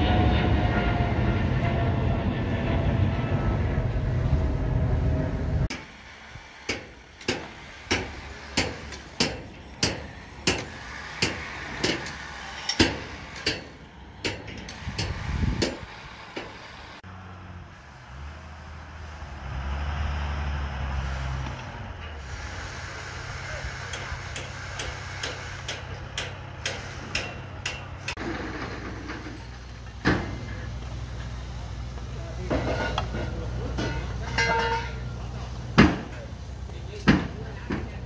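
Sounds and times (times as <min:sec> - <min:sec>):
low machine rumble: 0:00.0 - 0:05.7
airliner rumbling overhead: 0:00.0 - 0:06.3
hammer striking formwork: 0:05.7 - 0:16.7, 0:23.8 - 0:30.7, 0:32.4 - 0:35.2, 0:35.8 - 0:36.2.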